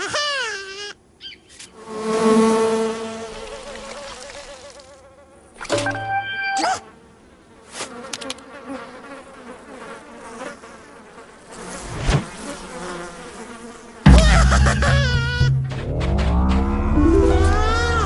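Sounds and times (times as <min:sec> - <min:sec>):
cartoon housefly buzzing: 0:00.0 - 0:01.0, 0:01.6 - 0:07.0, 0:07.7 - 0:15.8, 0:16.8 - 0:18.0
cartoon sound effects: 0:05.6 - 0:06.9, 0:14.1 - 0:18.0
wobbling sliding tones: 0:14.1 - 0:18.0.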